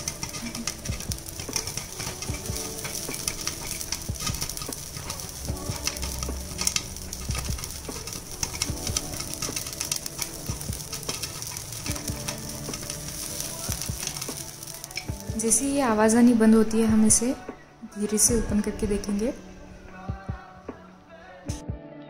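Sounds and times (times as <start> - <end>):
popcorn popping: 0.0 - 16.8
oil sizzling: 0.0 - 21.5.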